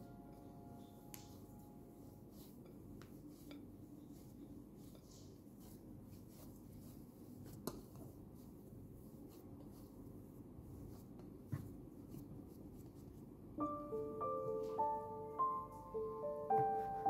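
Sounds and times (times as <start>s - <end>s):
hands squishing dough: 1.1s - 13.6s.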